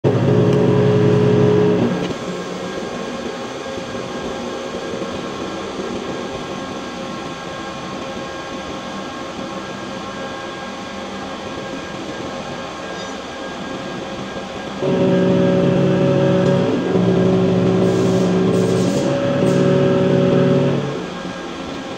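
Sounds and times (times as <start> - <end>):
workshop machinery noise: 0.0 - 3.0, 14.8 - 21.9
deep multi-tone hum: 0.0 - 3.3, 14.7 - 21.9.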